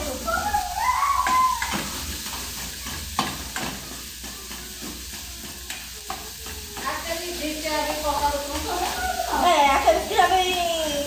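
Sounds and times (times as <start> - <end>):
ground beef sizzling in a pot: 0.0 - 11.0
spatula scraping and knocking pot: 1.6 - 10.2.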